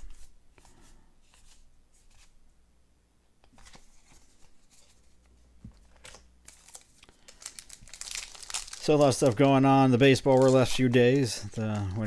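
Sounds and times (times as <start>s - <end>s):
cards rustling and tapping: 3.4s - 12.0s.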